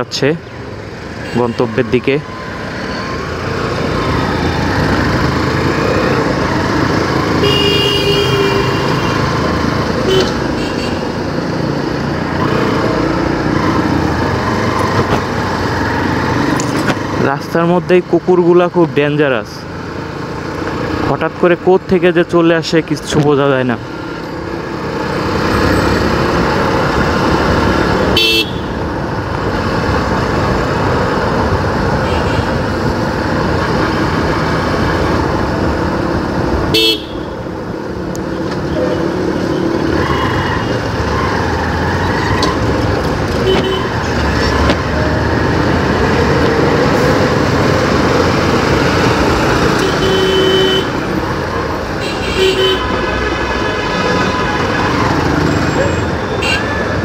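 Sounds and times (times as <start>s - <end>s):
road noise: 0.0s - 57.0s
vehicle horns honking: 7.4s - 9.3s, 10.0s - 11.0s, 28.1s - 28.8s, 36.7s - 37.4s, 43.4s - 44.0s, 49.8s - 51.0s, 52.0s - 53.1s, 55.9s - 56.8s.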